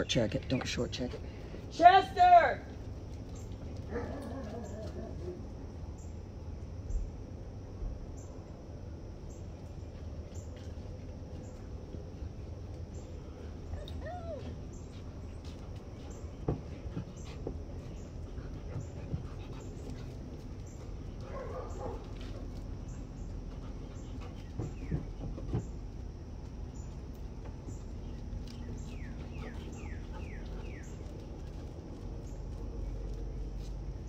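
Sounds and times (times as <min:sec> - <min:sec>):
low background noise: 0:00.0 - 0:34.0
dog whimpering: 0:13.7 - 0:14.6.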